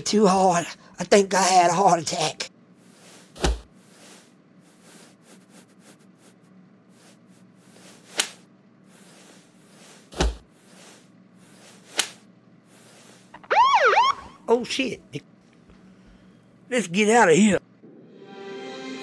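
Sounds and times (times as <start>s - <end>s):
siren wailing: 13.4s - 14.5s.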